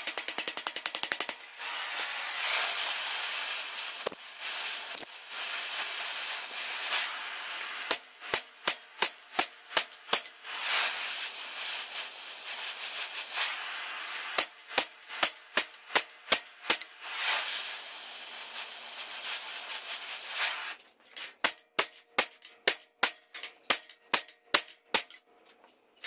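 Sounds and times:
gas torch hissing: 1.2s - 20.8s.

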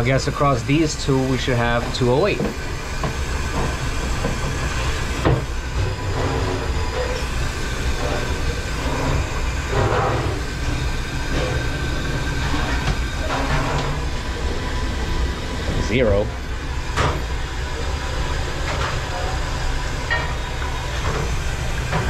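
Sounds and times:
machinery rumbling: 0.0s - 22.0s.

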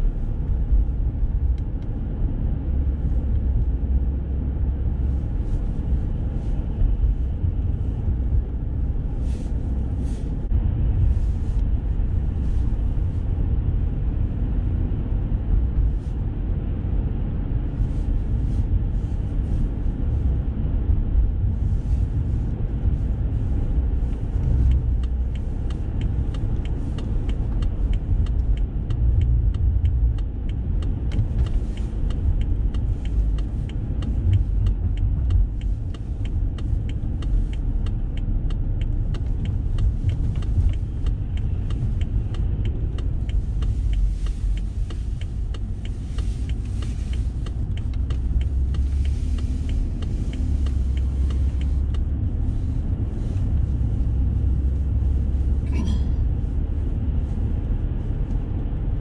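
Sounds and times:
car road and engine rumble: 0.0s - 59.0s.

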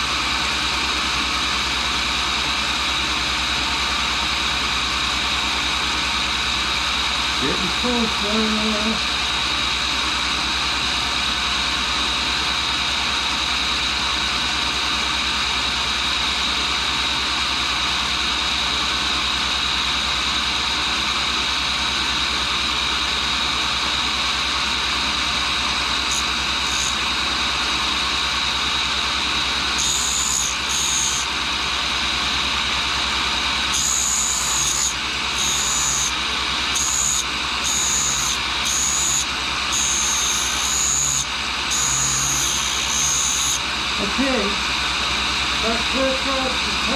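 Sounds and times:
grinder motor humming and whining: 0.0s - 46.9s
grinding hiss: 26.1s - 27.0s, 29.8s - 31.3s, 33.7s - 44.3s.

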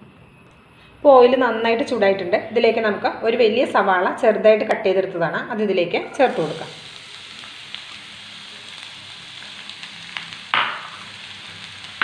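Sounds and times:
onion sizzling in hot oil: 6.1s - 12.0s.

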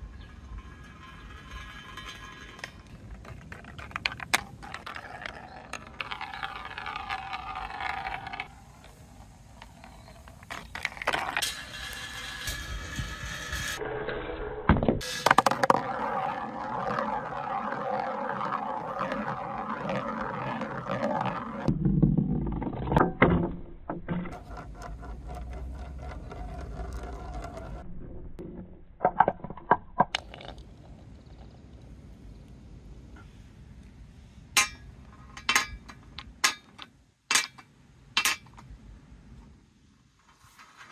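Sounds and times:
ball rolling in metal channel: 0.0s - 32.5s, 34.6s - 40.9s
ball knocking in wooden bowl: 15.0s - 27.8s
ball swirling in plastic tub: 15.3s - 21.7s.

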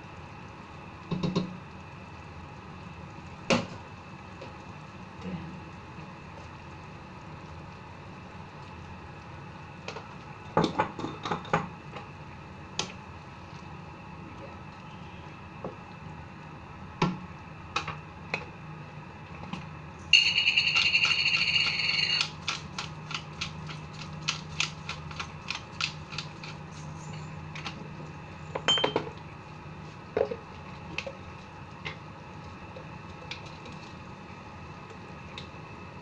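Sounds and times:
pepper grinder rattling and clicking: 20.2s - 26.6s.

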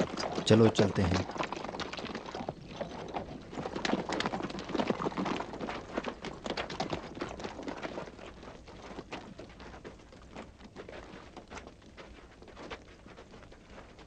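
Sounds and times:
group footsteps on hard ground: 0.0s - 14.0s.

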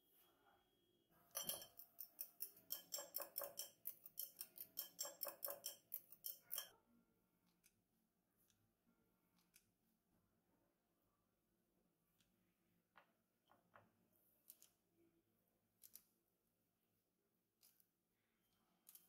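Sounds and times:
fork clinking against bowl: 1.3s - 6.7s.

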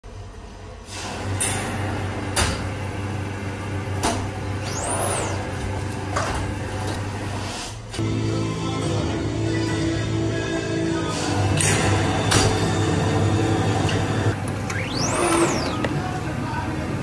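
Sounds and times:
music: 8.0s - 14.4s, 15.0s - 17.0s.

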